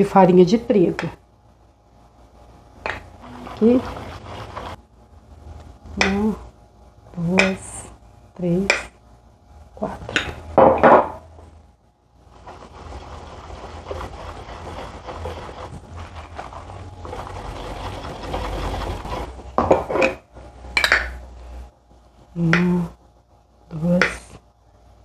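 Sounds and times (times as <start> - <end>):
whisk swishing in batter: 3.2 - 4.8, 12.2 - 19.5.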